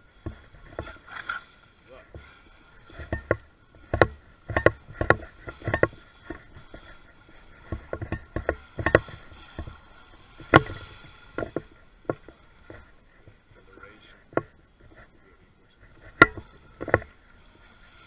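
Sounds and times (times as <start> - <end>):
hull knocking on water: 0.0 - 1.0, 2.0 - 15.0, 15.9 - 17.2
faint steady whine: 0.0 - 18.0.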